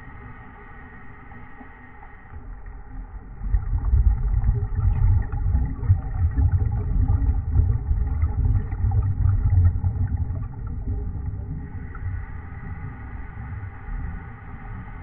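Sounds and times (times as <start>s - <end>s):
diver exhaling bubbles underwater: 3.3s - 12.2s.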